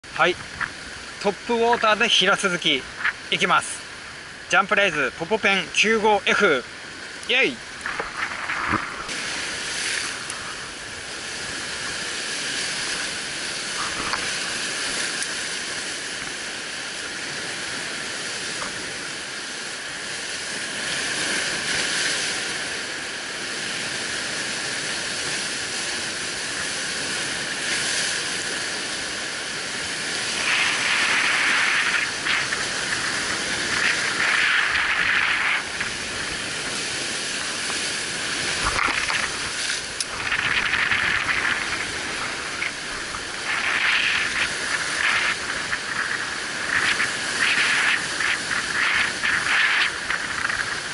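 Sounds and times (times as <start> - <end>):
surf breaking over rocks: 0.1 - 50.9.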